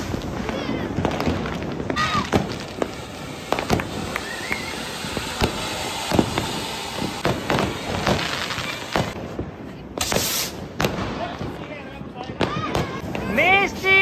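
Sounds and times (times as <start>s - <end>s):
hissing rush: 0.0s - 9.4s
firecrackers banging: 0.0s - 14.0s.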